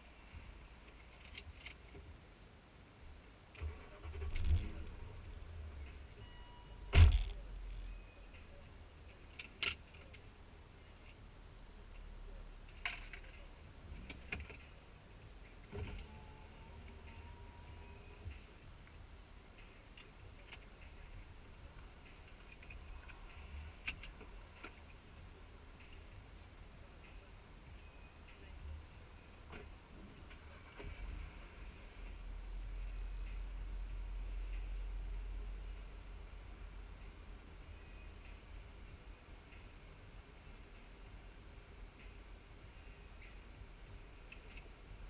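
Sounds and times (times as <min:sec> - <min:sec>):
soft clicks and handling noises: 0:00.3 - 0:02.3, 0:06.9 - 0:32.2, 0:41.9 - 0:45.0
rustling and handling noises: 0:03.6 - 0:06.1, 0:06.8 - 0:10.3
low car cabin rumble: 0:03.6 - 0:09.2.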